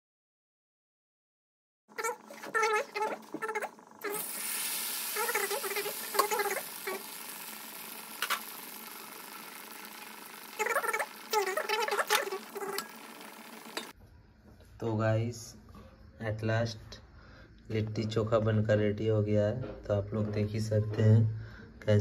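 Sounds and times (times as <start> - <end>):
deep-frying sizzle: 4.0 - 13.9.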